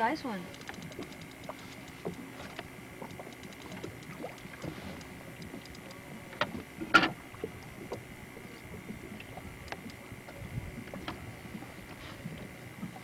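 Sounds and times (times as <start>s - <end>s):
water slapping boat hull: 0.0s - 13.0s
small clicks: 0.5s - 11.7s.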